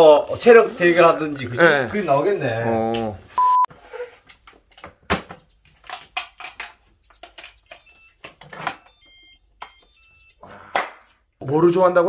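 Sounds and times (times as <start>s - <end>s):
short electronic beeps: 3.4s - 3.7s, 7.7s - 10.5s
plastic clicks and knocks: 4.7s - 9.0s.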